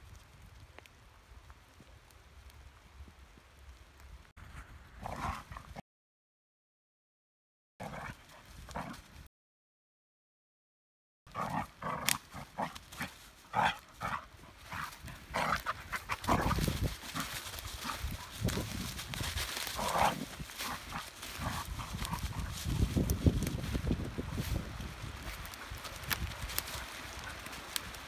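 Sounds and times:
dogs growling and barking: 5.0 - 5.8, 11.3 - 18.6, 19.6 - 22.9
paws scuffling in dry leaves: 11.5 - 28.0.

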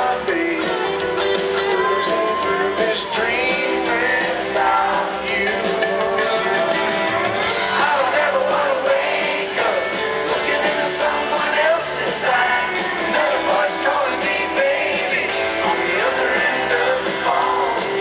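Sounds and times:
electric guitar: 0.0 - 18.0
live country band playing: 0.0 - 18.0
man singing: 0.0 - 18.0.

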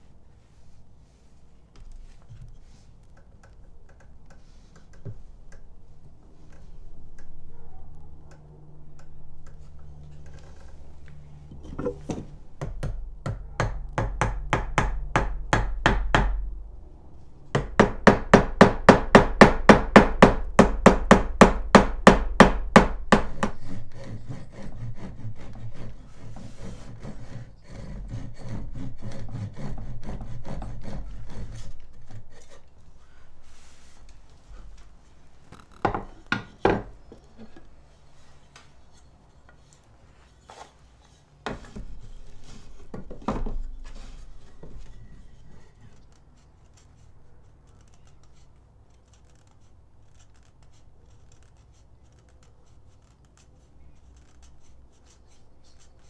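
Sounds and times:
hand tool strokes on wood: 23.4 - 35.2.

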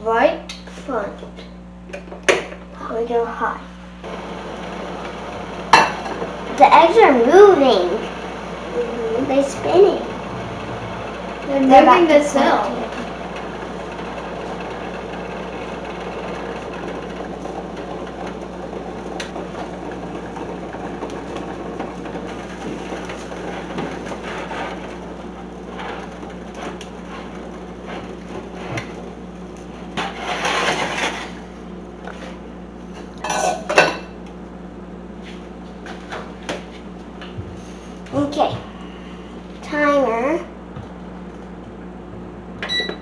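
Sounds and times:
water boiling in a saucepan: 4.0 - 34.2.

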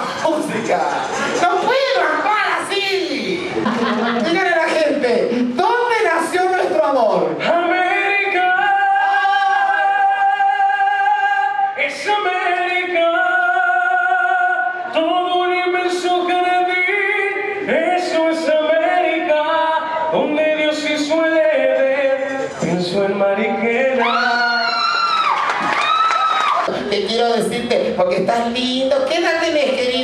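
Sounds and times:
man singing into a microphone: 7.3 - 25.2.

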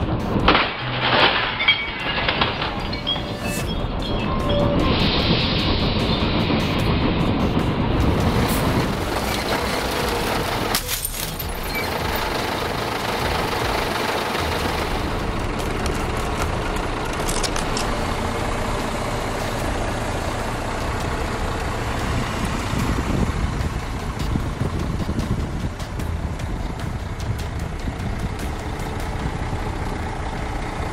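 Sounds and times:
truck engine running: 0.0 - 30.9
glass breaking cracks: 0.5 - 3.6, 10.7 - 11.9.

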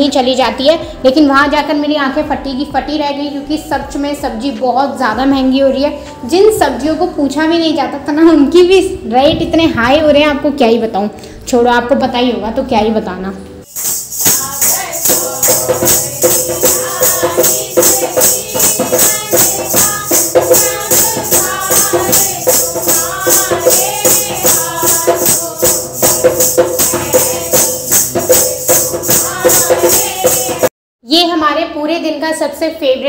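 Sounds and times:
jingling hand percussion: 13.6 - 30.7
women singing devotional song: 13.8 - 30.7.

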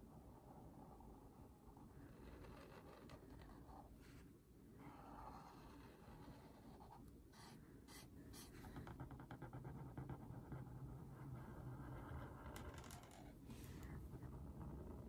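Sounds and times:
marker scratching on paper: 4.8 - 12.5.

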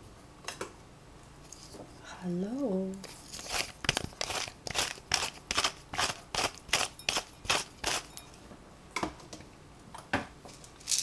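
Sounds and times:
spice shaker rattling: 3.1 - 8.2.

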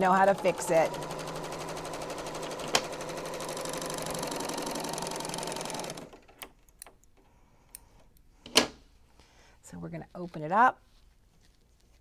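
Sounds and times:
sewing machine stitching: 0.0 - 6.4.

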